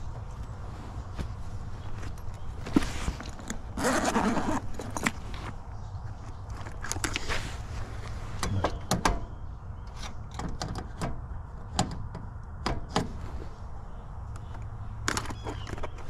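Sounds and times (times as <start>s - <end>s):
tools clicking and knocking: 9.9s - 13.1s.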